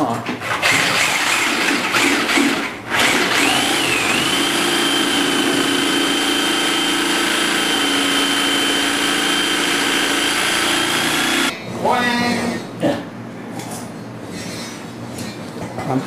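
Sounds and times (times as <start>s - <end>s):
reciprocating saw cutting sheet metal: 0.6s - 11.6s.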